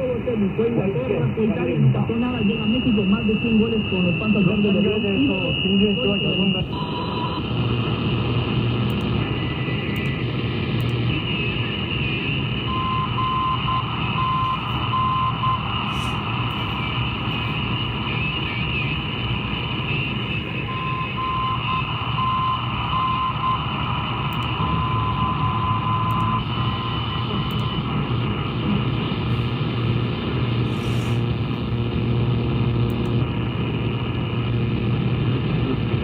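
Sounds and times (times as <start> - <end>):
radio static: 0.0 - 36.0
morse code beeps: 2.2 - 7.4, 12.6 - 27.9.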